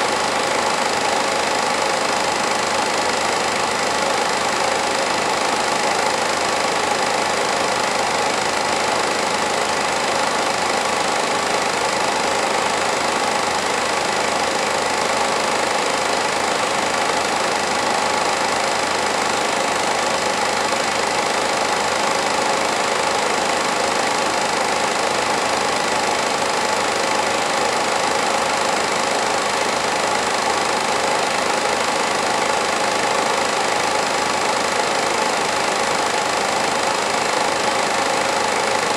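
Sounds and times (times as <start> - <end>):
film projector whirring and clattering: 0.0 - 38.9.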